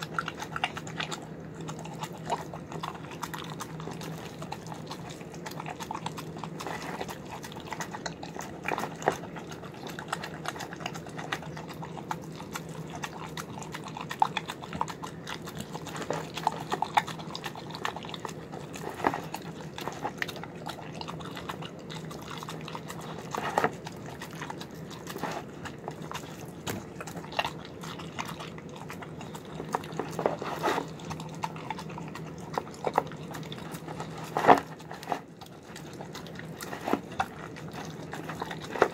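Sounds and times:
dog chewing wet food: 0.0s - 38.9s.

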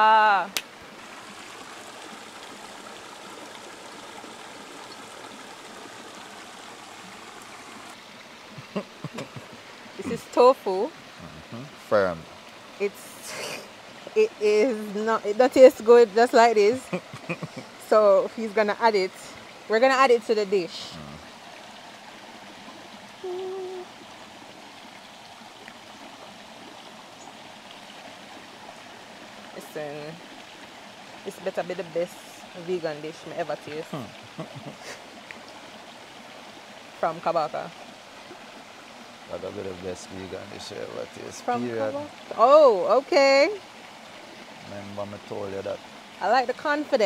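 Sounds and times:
stream running over rocks: 0.0s - 47.0s.

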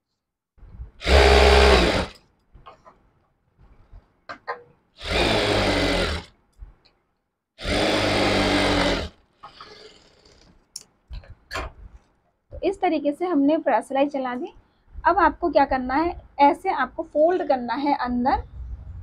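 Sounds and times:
sewing machine running: 1.0s - 2.1s, 5.0s - 6.3s, 7.6s - 10.4s.

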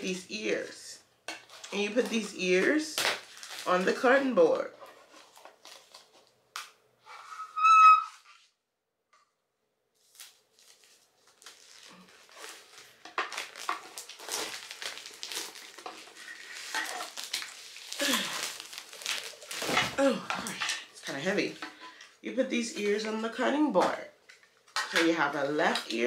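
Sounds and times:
plastic packaging crinkling: 1.4s - 6.5s, 10.0s - 21.8s
short high squeak: 7.1s - 8.4s.

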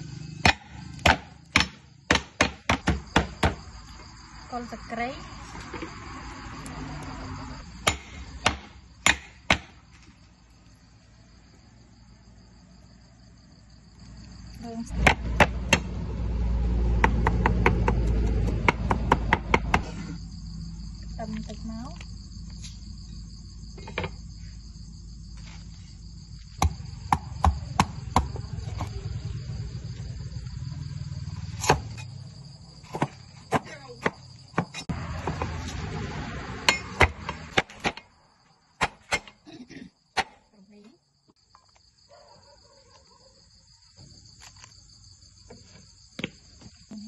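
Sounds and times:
crickets chirring: 0.0s - 47.0s
cleaver chopping on wooden board: 0.4s - 3.6s, 7.8s - 9.7s, 14.9s - 15.9s, 17.0s - 19.9s, 26.6s - 28.4s, 38.8s - 39.3s.

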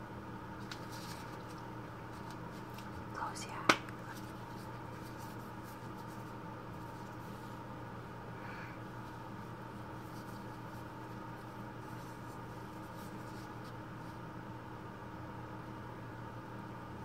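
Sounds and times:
low electrical hum: 0.0s - 17.0s
gloved hands scratching and crinkling: 0.6s - 7.8s, 8.8s - 14.2s.

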